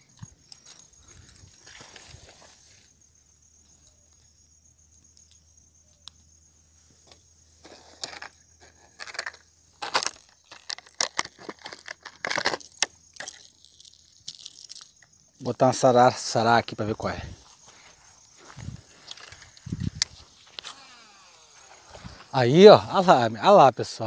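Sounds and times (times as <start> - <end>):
rummaging through a bag: 7.6 - 14.8
plastic packet crinkling: 8.9 - 15.0.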